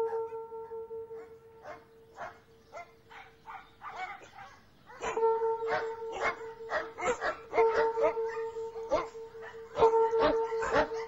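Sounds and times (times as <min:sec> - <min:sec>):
held low musical note: 0:00.0 - 0:02.2
dogs barking: 0:00.0 - 0:11.0.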